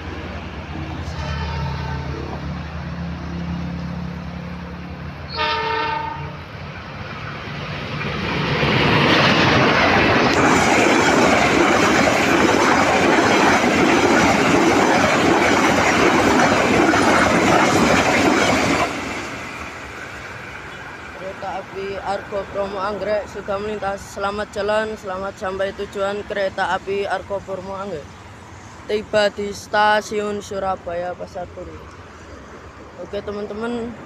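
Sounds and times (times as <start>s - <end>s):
train horn blast: 1.0s - 2.4s, 5.3s - 6.4s
train carriages rumbling and clattering: 7.0s - 27.7s.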